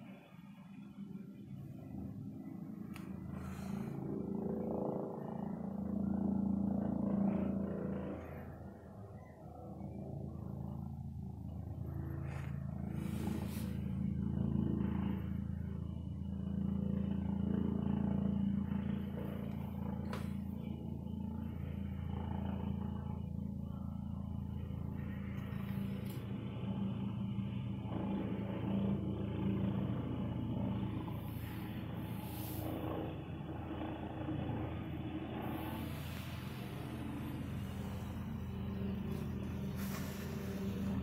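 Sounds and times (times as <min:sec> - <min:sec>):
helicopter hovering overhead: 0:00.0 - 0:41.0.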